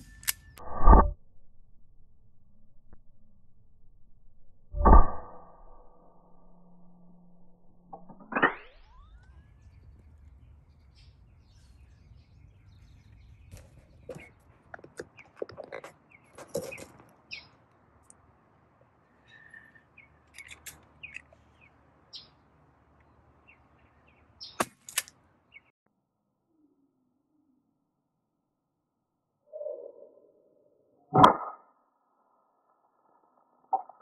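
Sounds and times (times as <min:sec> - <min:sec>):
small birds chirping: 0:08.8 - 0:25.7.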